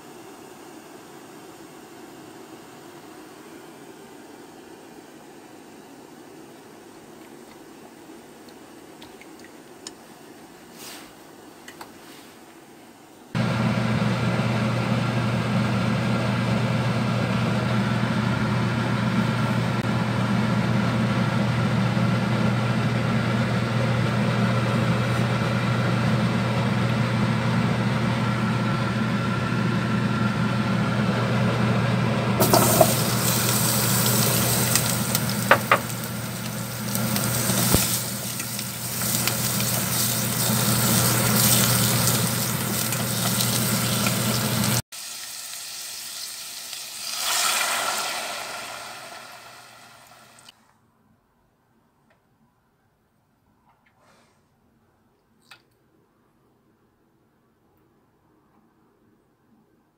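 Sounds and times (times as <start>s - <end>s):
steady electrical hum: 32.2s - 44.8s
radish sizzling in a hot pot: 32.4s - 50.5s.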